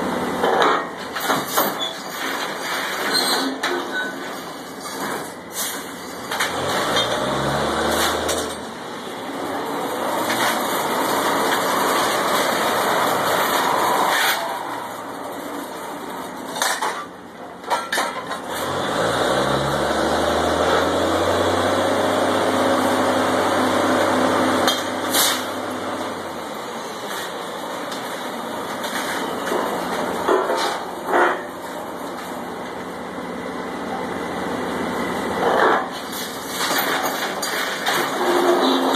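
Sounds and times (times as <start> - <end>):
drilling rig engines revving: 6.3 - 16.6, 18.4 - 26.5.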